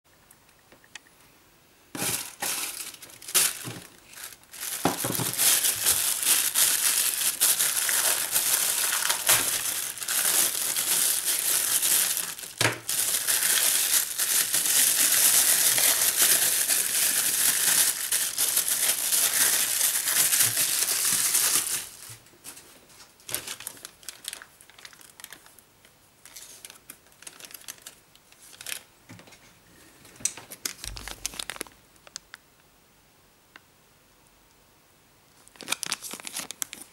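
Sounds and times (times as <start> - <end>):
plastic packaging crinkling: 2.0 - 25.6, 26.2 - 28.9, 30.4 - 32.4, 35.4 - 36.9.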